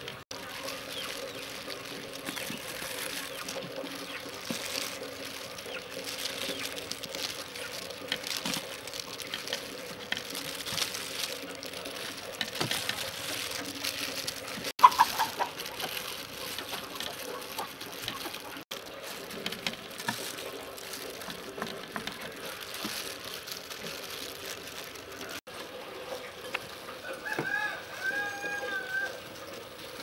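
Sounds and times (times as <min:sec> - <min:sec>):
hands working rice in metal tray: 0:00.0 - 0:25.5
chicken clucking: 0:14.8 - 0:18.6.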